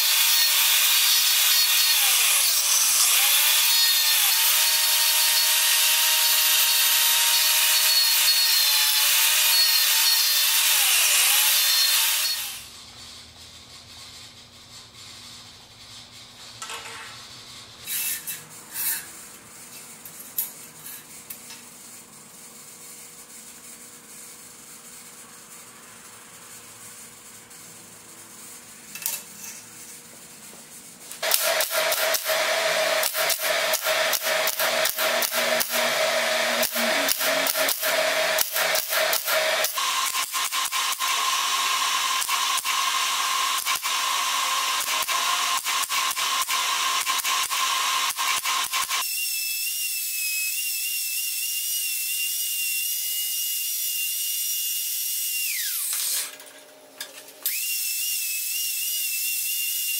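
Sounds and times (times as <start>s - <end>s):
steady welder tone: 0.0s - 59.9s
welder crackling sizzle: 33.0s - 48.9s.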